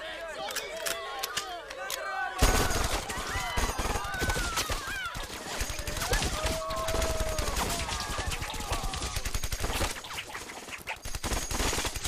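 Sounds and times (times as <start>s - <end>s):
rifle and machine-gun fire: 2.4s - 12.0s.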